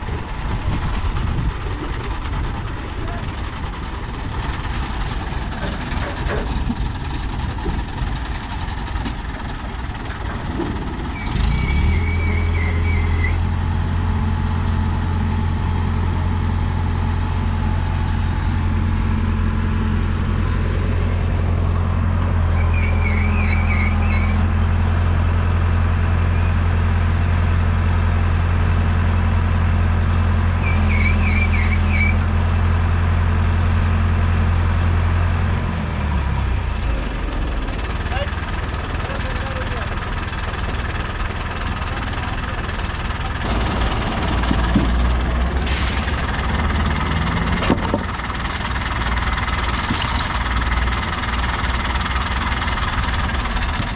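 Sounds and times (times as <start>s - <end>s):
heavy diesel engine revving: 0.0s - 53.9s.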